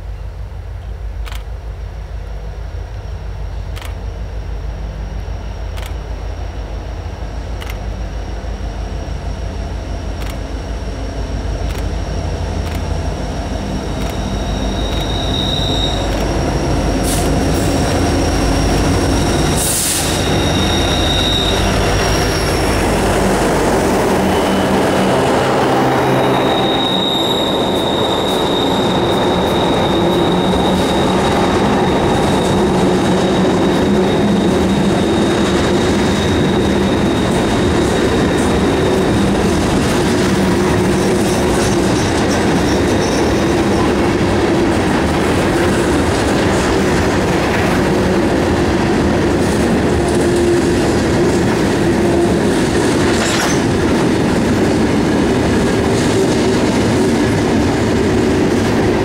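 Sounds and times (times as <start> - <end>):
locomotive engine drone: 0.0 - 59.0
train cars rumbling: 0.0 - 59.0
high wheel squeal: 10.7 - 44.4.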